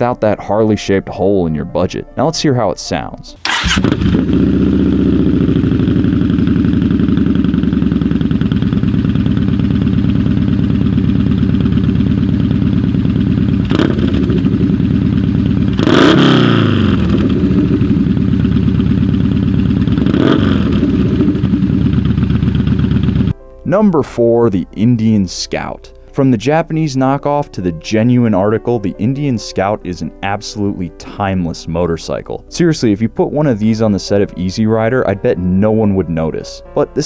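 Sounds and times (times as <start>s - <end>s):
motorcycle engine revving: 3.4s - 23.4s
motorcycle engine idling: 3.5s - 23.4s.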